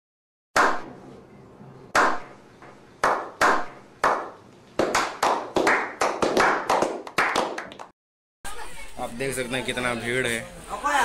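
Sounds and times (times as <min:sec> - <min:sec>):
slow echoing hand claps: 0:03.0 - 0:07.9.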